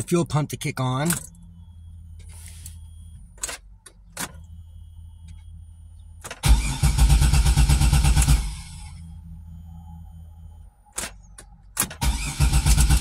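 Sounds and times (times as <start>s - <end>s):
steady low hum: 0.0s - 12.0s
starter cranking engine: 6.3s - 8.8s, 11.8s - 13.0s.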